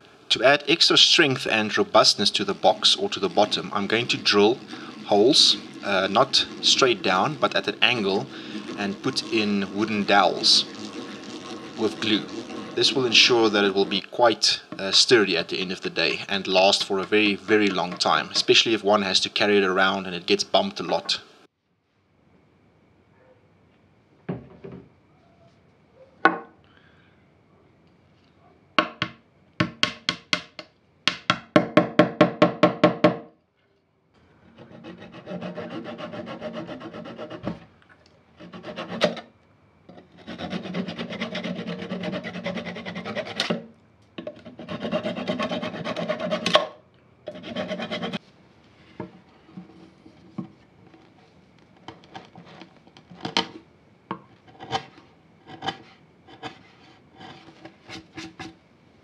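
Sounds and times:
hand saw cutting wood: 0:01.5 - 0:15.9, 0:16.6 - 0:18.7, 0:34.5 - 0:37.6, 0:38.4 - 0:39.2, 0:40.0 - 0:43.6, 0:44.3 - 0:46.7, 0:47.3 - 0:48.2, 0:54.4 - 0:58.6
chisel scraping and clicking: 0:02.2 - 0:14.1, 0:16.7 - 0:18.6, 0:34.5 - 0:37.6, 0:38.4 - 0:39.3, 0:39.9 - 0:43.6, 0:44.2 - 0:48.2, 0:51.8 - 0:58.6.

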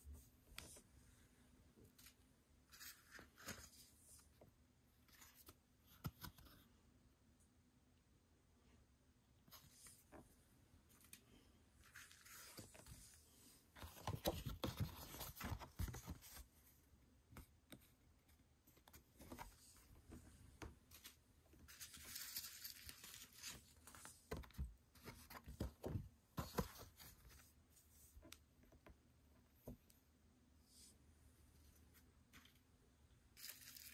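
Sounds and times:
paper and card rustling: 0:01.9 - 0:04.3, 0:05.0 - 0:06.7, 0:10.9 - 0:16.5, 0:20.7 - 0:27.6, 0:33.4 - 0:33.9.

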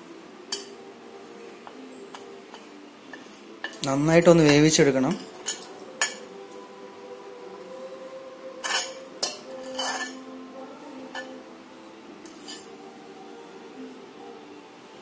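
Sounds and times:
metal spoon clinking on ceramic plate: 0:04.5 - 0:06.3, 0:08.6 - 0:10.2, 0:11.1 - 0:11.4, 0:12.3 - 0:12.7.

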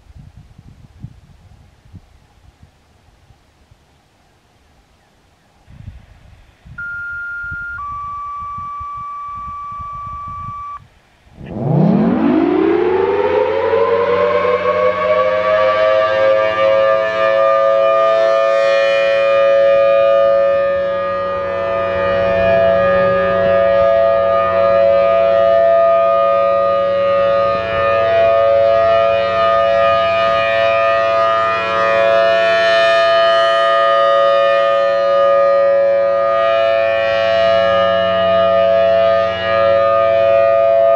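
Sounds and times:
radio activation tones: 0:06.8 - 0:10.8
rotating siren winding up: 0:06.8 - 0:10.8, 0:11.5 - 0:14.7.

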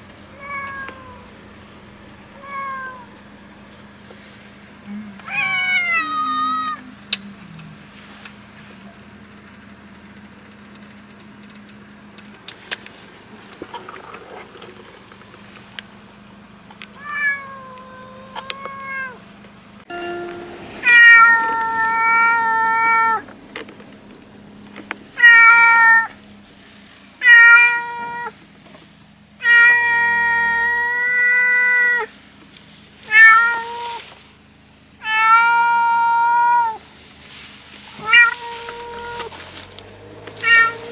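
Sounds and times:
cat meowing loudly: 0:00.4 - 0:01.3, 0:02.4 - 0:03.1, 0:05.2 - 0:06.8, 0:17.0 - 0:19.2, 0:20.8 - 0:23.2, 0:25.2 - 0:26.1, 0:27.2 - 0:28.4, 0:29.4 - 0:32.1, 0:33.1 - 0:34.0, 0:35.0 - 0:36.8, 0:38.0 - 0:39.3, 0:40.4 - 0:40.9.

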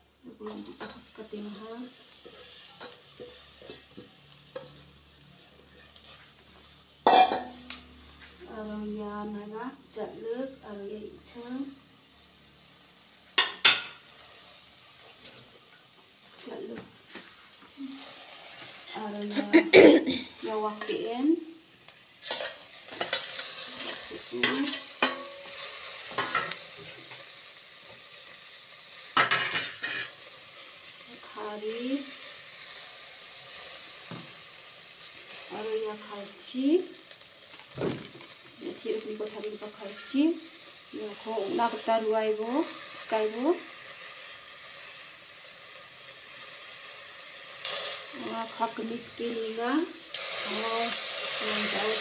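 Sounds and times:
greens sizzling in hot pot: 0:00.0 - 0:52.0
metal spoon scraping a pot: 0:22.2 - 0:26.6.

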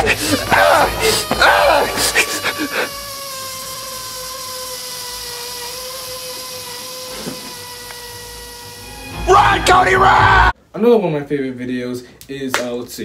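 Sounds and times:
air squealing out of inflatable: 0:00.0 - 0:10.4.

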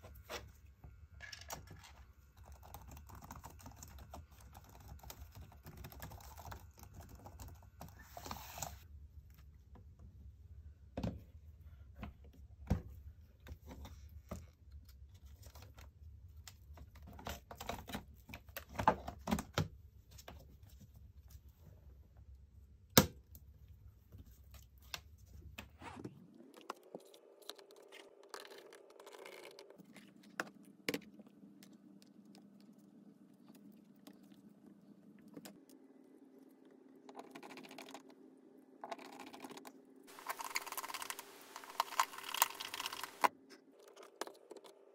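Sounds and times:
faint steady hum: 0:00.0 - 0:44.9
laptop parts clicking and rattling: 0:38.8 - 0:44.8.

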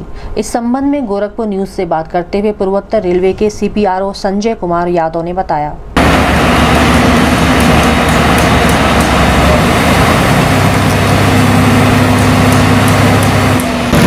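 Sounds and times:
diesel construction machinery running: 0:06.0 - 0:14.0.

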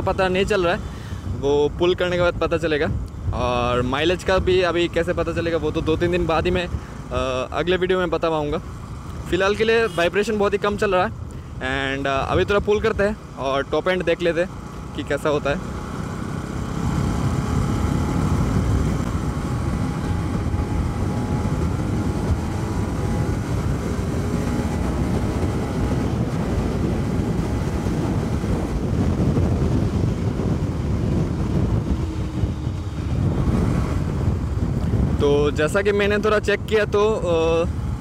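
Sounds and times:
wind buffeting microphone: 0:00.0 - 0:14.9, 0:15.6 - 0:38.0
motorcycle engine accelerating: 0:14.3 - 0:35.3.

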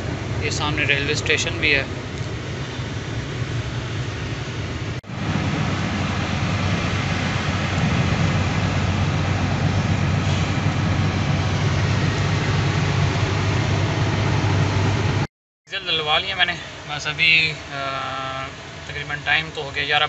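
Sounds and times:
road noise: 0:00.0 - 0:20.0
truck diesel engine drone: 0:00.0 - 0:20.0.

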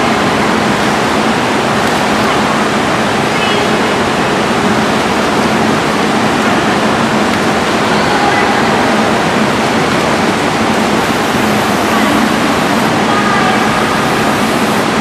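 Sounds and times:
faint voices: 0:06.2 - 0:15.0.

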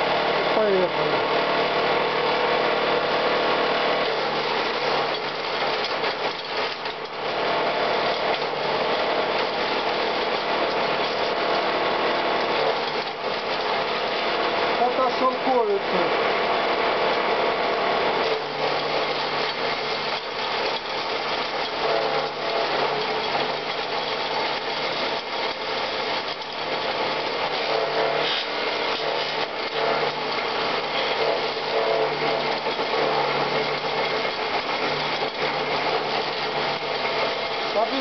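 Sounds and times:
electric motor hum: 0:00.0 - 0:38.0
twigs being shredded: 0:18.1 - 0:38.0.

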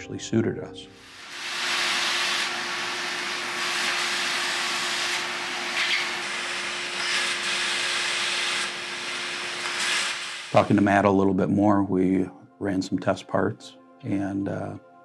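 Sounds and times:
laser cutter hissing: 0:01.0 - 0:10.8.

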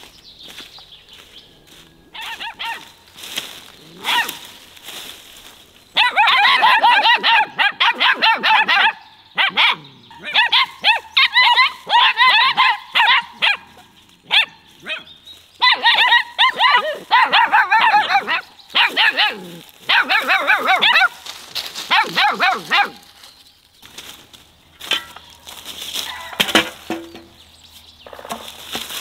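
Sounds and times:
puppies yapping: 0:01.6 - 0:04.6, 0:05.9 - 0:23.4, 0:24.9 - 0:27.2.

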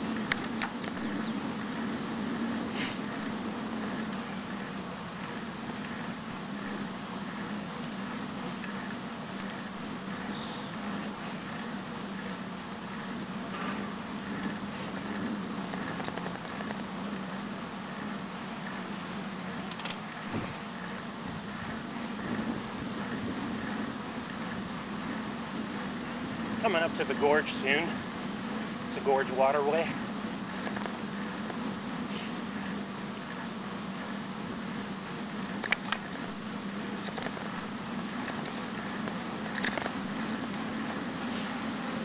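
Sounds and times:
bicycle rolling on pavement: 0:00.0 - 0:42.0
faint high ticks: 0:08.4 - 0:17.4.

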